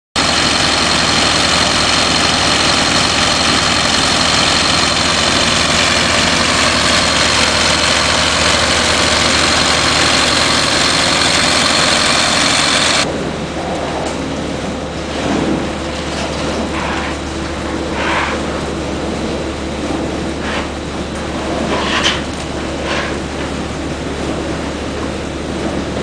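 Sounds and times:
vacuum truck suction rushing: 0.2s - 13.1s
high whine: 0.2s - 26.0s.

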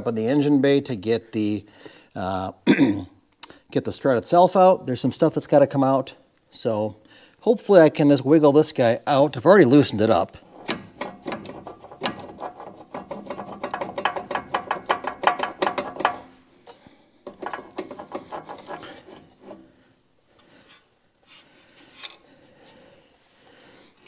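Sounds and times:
handling of metal parts: 10.5s - 19.7s, 20.4s - 22.4s.

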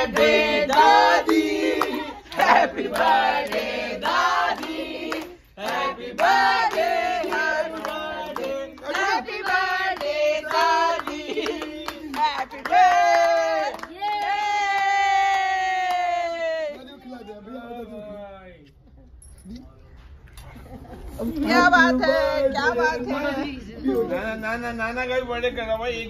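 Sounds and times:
group of voices singing: 0.0s - 13.7s
hand clapping: 0.1s - 16.1s.

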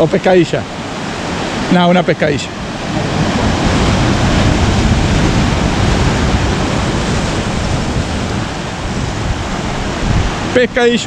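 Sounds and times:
sea surf on rocks: 0.0s - 11.0s
wind: 0.0s - 11.0s
wind buffeting microphone: 0.0s - 11.0s.

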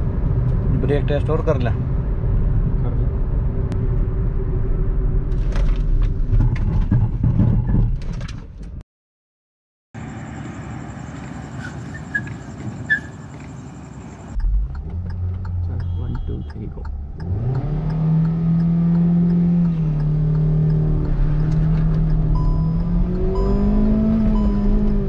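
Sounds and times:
car interior road rumble: 10.0s - 25.0s.

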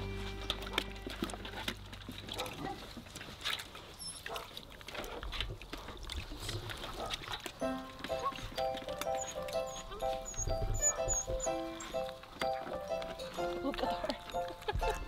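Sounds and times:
puppies whimpering and grunting: 7.6s - 15.0s.

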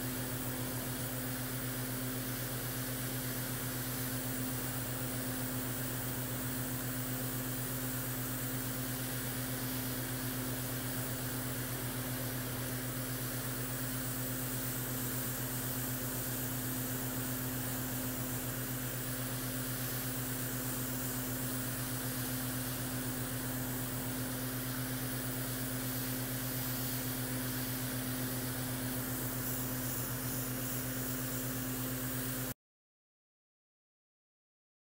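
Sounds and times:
airbrush air hiss: 0.0s - 32.5s
compressor humming: 0.0s - 32.5s.

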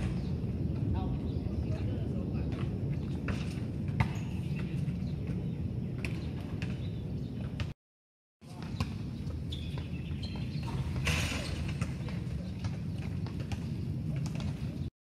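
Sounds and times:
bird chirps: 8.6s - 11.6s.

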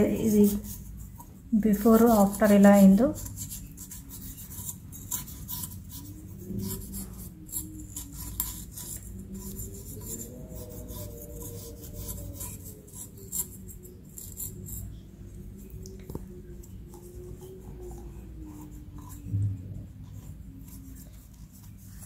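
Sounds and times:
scrubbing pad on metal: 0.0s - 15.0s.

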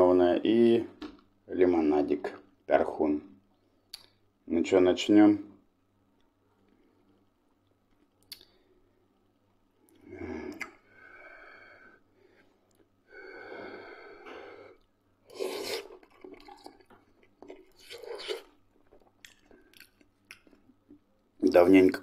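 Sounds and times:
man chewing: 6.2s - 11.2s, 13.7s - 21.2s
breathy puffs and breaths: 10.0s - 14.8s.

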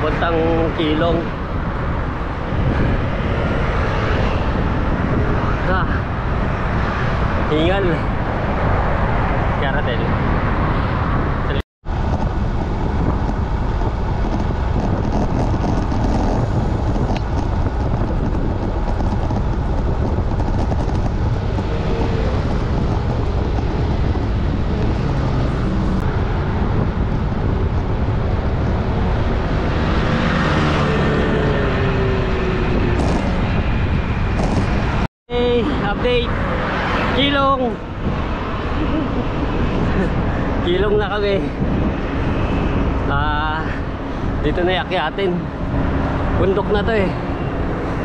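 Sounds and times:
passing vehicle: 0.0s - 48.0s
road and traffic noise: 0.0s - 48.0s
wind rumble on microphone: 0.0s - 48.0s.

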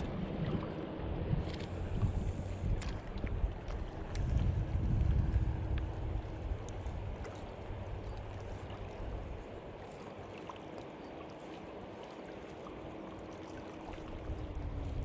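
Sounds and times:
wind buffeting microphone: 0.0s - 9.4s, 14.1s - 15.0s
water washing against bank: 0.0s - 15.0s.

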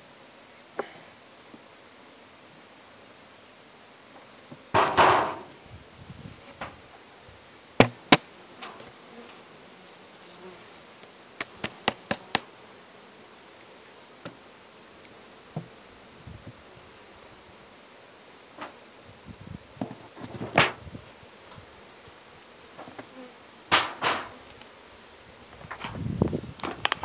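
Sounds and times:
honeybees buzzing: 2.8s - 27.0s
wooden hive parts knocking: 4.7s - 5.5s, 7.8s - 8.2s, 11.4s - 12.4s
scraping rustle: 19.8s - 21.7s, 25.5s - 27.0s.

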